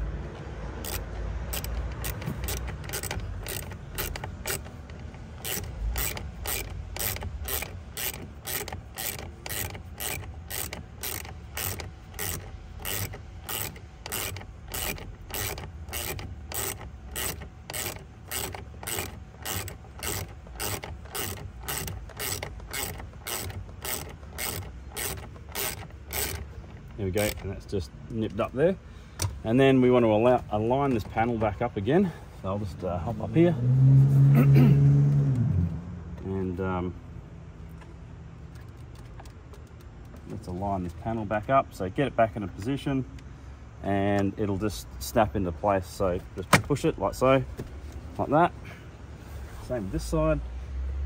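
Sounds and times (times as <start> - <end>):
hand ratchet clicking: 0.8 - 28.5.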